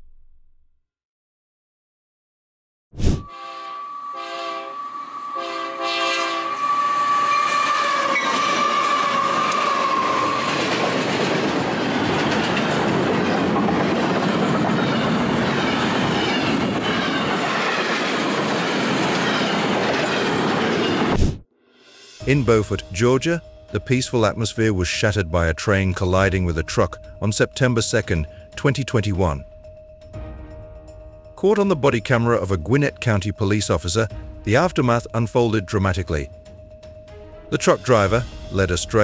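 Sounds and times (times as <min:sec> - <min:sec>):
locomotive air horn blasts: 0:03.2 - 0:10.4
steady high tone: 0:03.2 - 0:10.8, 0:22.0 - 0:39.0
train wheels rumbling and clattering: 0:07.6 - 0:21.1.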